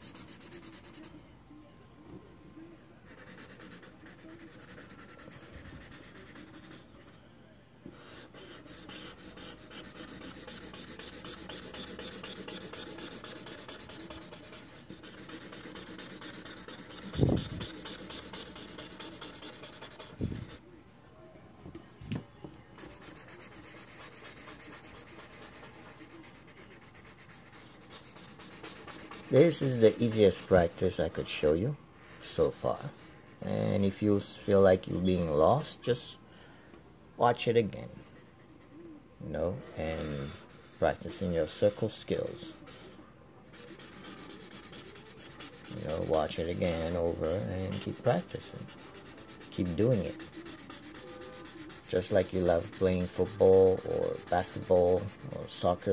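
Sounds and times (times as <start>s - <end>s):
marker scratching on paper: 0.0s - 1.1s, 3.1s - 7.2s, 7.9s - 20.6s, 22.8s - 31.0s, 40.4s - 55.9s.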